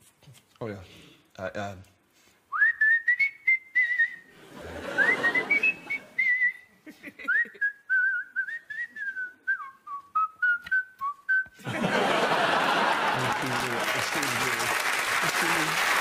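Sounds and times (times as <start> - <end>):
person whistling a tune: 2.5 - 4.3, 5.0 - 6.7, 7.3 - 11.6
studio audience laughter: 4.4 - 6.2, 11.6 - 14.5.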